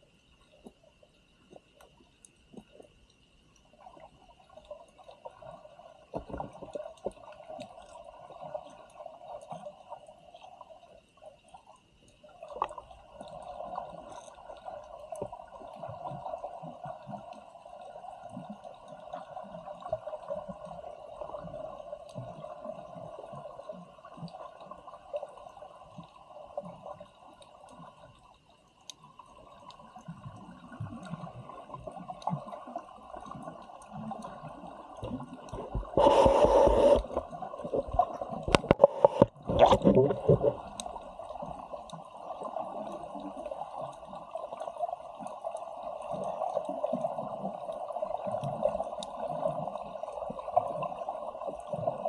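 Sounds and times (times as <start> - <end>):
faint clicks and crackles: 0.0 - 52.0
muffled underwater ambience: 0.0 - 52.0
hum: 35.0 - 42.0.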